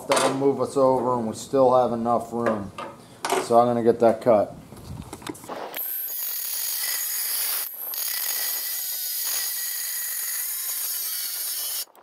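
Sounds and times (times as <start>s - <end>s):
angle grinder cutting sheet metal: 5.8s - 12.0s.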